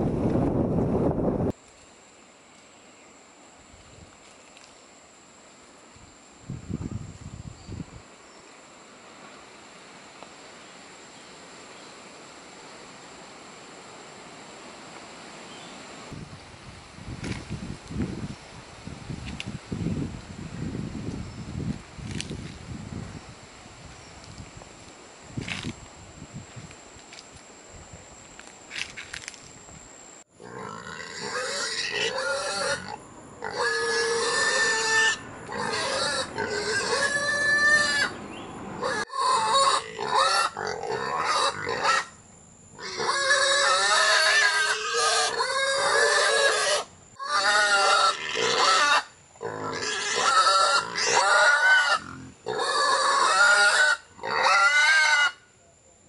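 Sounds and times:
pig squealing: 0:30.4 - 0:38.2, 0:38.8 - 0:42.1, 0:42.8 - 0:55.5.

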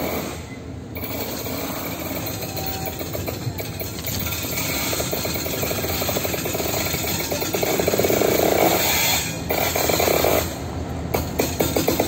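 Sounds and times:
diesel locomotives rattling past: 0:00.0 - 0:12.0.

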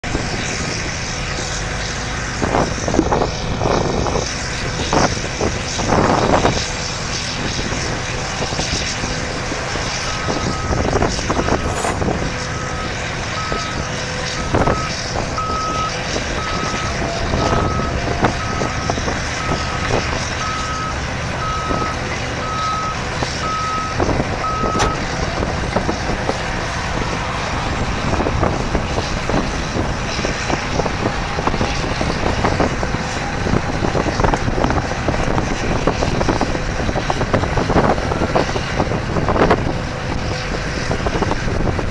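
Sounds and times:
bulldozer diesel engine: 0:00.0 - 0:41.9
backup alarm beeping: 0:22.5 - 0:25.0.

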